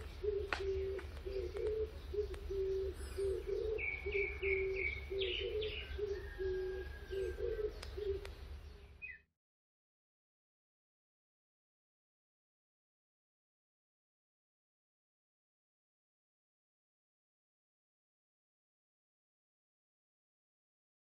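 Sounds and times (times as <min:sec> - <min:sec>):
dove cooing: 0:00.0 - 0:08.5
small bird chirping: 0:00.0 - 0:09.3.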